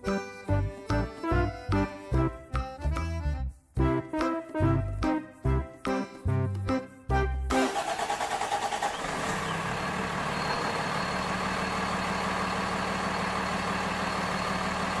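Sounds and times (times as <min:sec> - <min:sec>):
large vehicle engine idling: 0:07.6 - 0:15.0.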